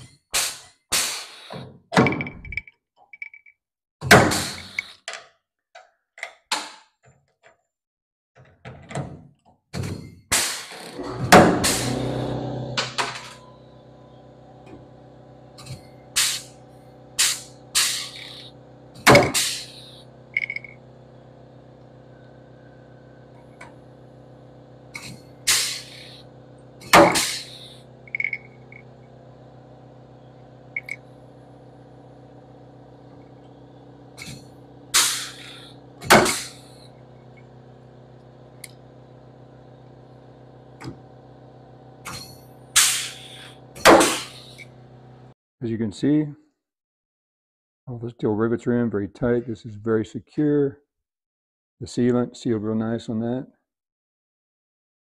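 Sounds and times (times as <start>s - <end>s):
pneumatic rivet gun bursts: 0.4s - 1.6s, 4.2s - 5.0s, 10.3s - 13.4s, 15.6s - 20.7s, 24.9s - 28.9s, 34.2s - 37.0s, 42.0s - 44.7s
steady machine hum: 10.7s - 45.4s.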